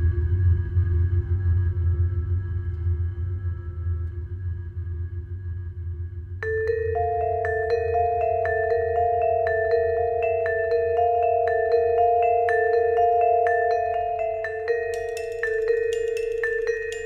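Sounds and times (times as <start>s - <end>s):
vibraphone notes: 6.4s - 17.0s.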